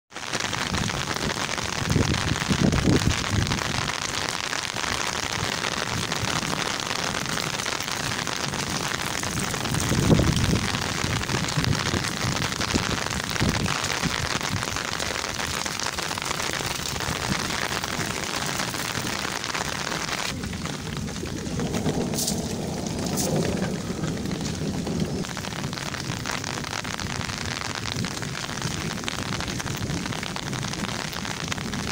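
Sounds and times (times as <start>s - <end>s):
steady rain on wet ground: 0.1s - 31.9s
low rumbles: 20.2s - 28.4s.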